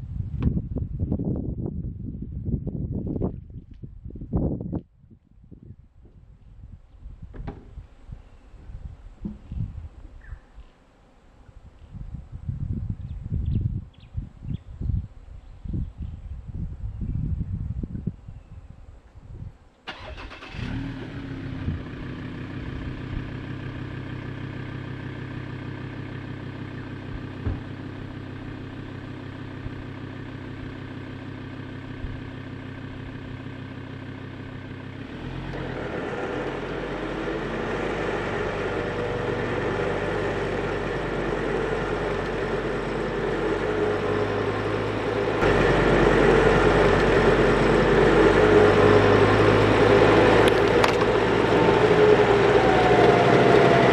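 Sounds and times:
winch hauling line: 0:19.9 - 0:20.8, 0:35.5 - 0:53.9
truck engine starting and idling: 0:19.9 - 0:53.9.

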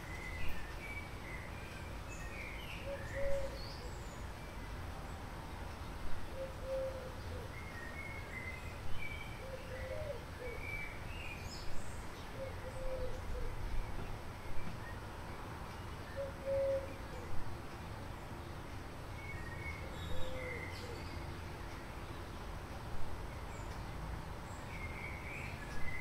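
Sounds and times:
lower bird call: 0:00.0 - 0:04.3, 0:06.3 - 0:11.4, 0:12.4 - 0:14.0, 0:16.1 - 0:17.3, 0:19.2 - 0:21.3
small birds chirping: 0:00.0 - 0:26.0.

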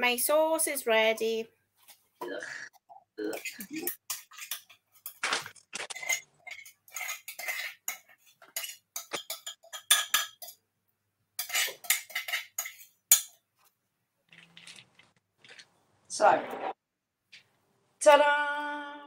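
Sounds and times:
spoon scraping and clinking cookware: 0:03.3 - 0:05.2, 0:05.8 - 0:10.6, 0:11.4 - 0:13.4.

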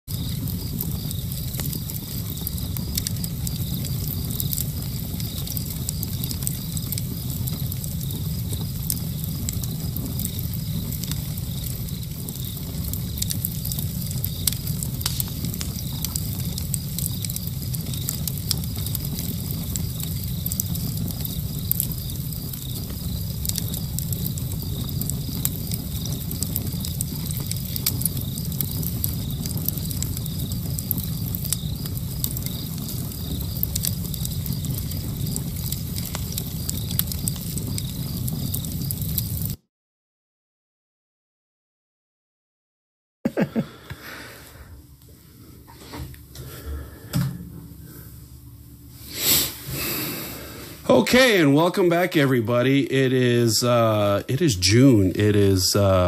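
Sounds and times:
faint crackles and clicks: 0:00.1 - 0:39.6
low rumble and hiss: 0:00.2 - 0:39.6, 0:43.4 - 0:56.0.

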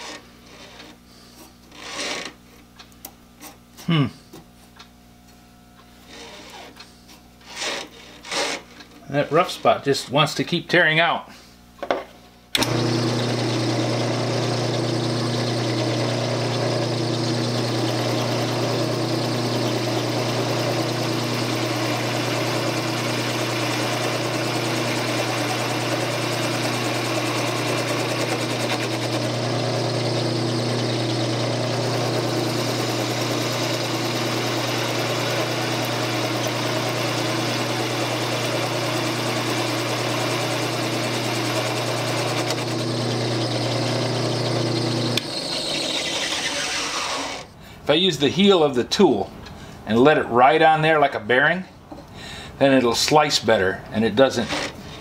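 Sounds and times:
turning tool cutting wood: 0:00.0 - 0:01.0, 0:01.6 - 0:02.4, 0:06.0 - 0:06.8, 0:07.4 - 0:08.7, 0:12.6 - 0:47.5, 0:54.2 - 0:54.8
wood lathe motor hum: 0:12.6 - 0:47.5.

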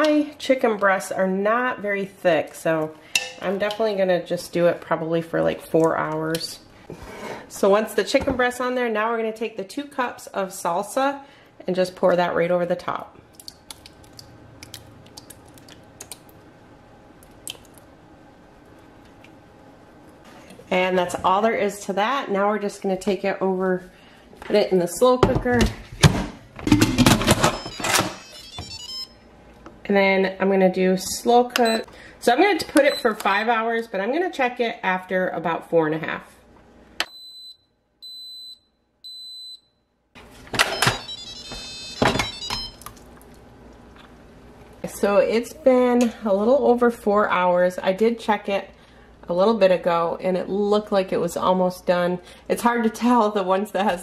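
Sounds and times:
high beeps: 0:27.4 - 0:29.2, 0:31.6 - 0:31.8, 0:40.7 - 0:42.8.

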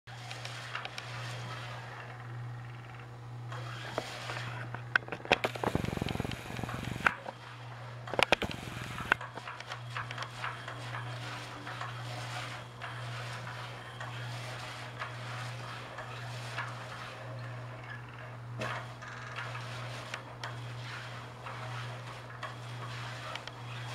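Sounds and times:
toy motor humming: 0:00.2 - 0:04.8, 0:05.4 - 0:07.2
rapid rattling and clicking: 0:00.2 - 0:07.4, 0:08.0 - 0:23.9.

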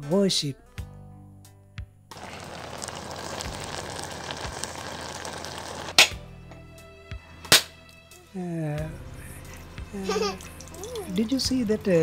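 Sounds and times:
pot of rice boiling and hissing: 0:02.2 - 0:06.0
machete striking coconut: 0:05.9 - 0:06.2, 0:07.5 - 0:07.8.

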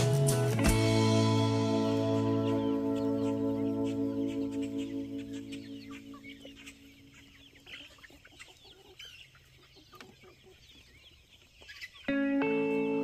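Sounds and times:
loud music: 0:00.0 - 0:04.0
chickens clucking: 0:01.4 - 0:13.0.

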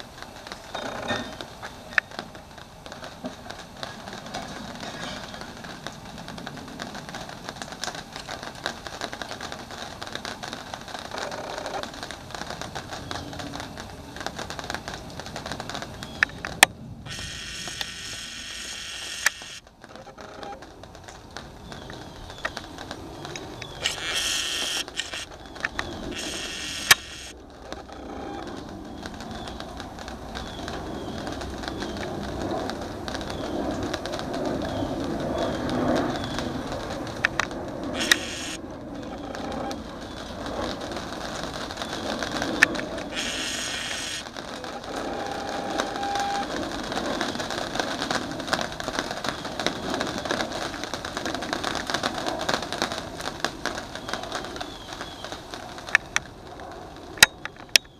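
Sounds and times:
jet engines passing overhead: 0:00.0 - 0:57.9
sharp clicks: 0:05.9 - 0:47.4
higher hiss bursts: 0:17.1 - 0:19.7, 0:23.8 - 0:25.4, 0:26.1 - 0:27.4, 0:37.9 - 0:38.6, 0:41.7 - 0:46.5.

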